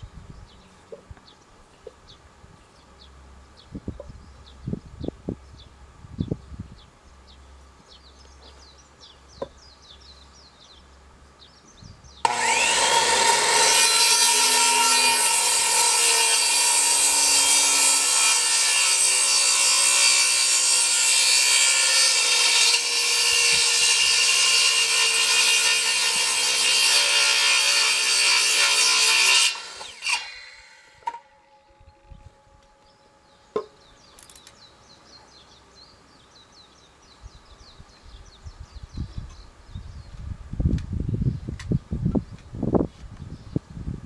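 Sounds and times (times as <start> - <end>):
saw winding down: 12.2 - 31.2
circular saw cutting wood: 12.2 - 31.6.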